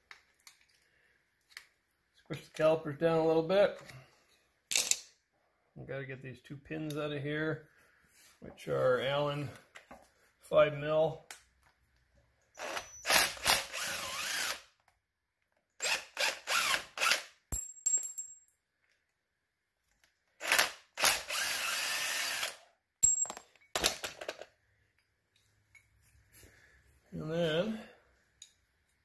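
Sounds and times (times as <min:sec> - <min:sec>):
cordless drill whirring: 0:12.6 - 0:14.7, 0:15.8 - 0:17.3, 0:20.4 - 0:22.6.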